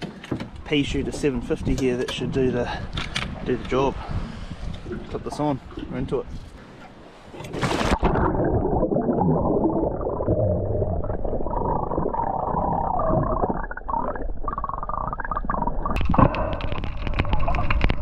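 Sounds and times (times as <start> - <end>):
underwater rush of bubbles: 7.6 - 18.0.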